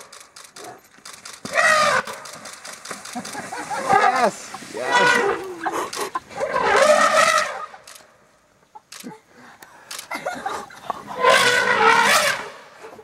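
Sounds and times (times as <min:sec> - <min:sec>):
elephant trumpeting: 0:01.5 - 0:02.2, 0:03.7 - 0:07.8, 0:11.2 - 0:12.8.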